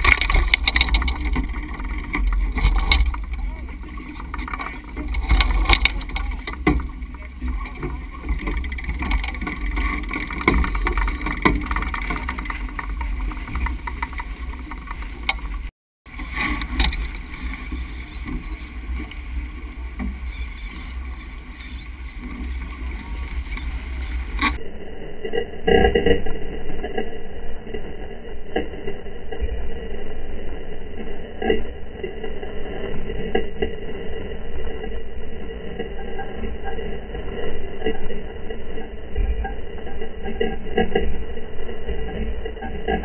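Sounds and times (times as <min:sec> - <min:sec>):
water rushing past boat: 0:00.0 - 0:24.6
wind buffeting microphone: 0:00.0 - 0:24.6.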